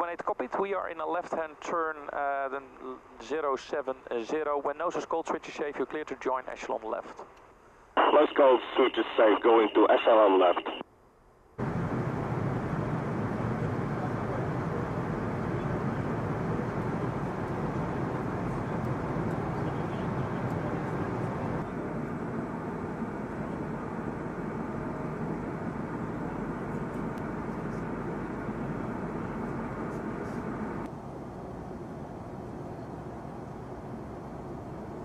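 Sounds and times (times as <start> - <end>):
aircraft engine drone: 8.0 - 10.8, 11.6 - 35.0.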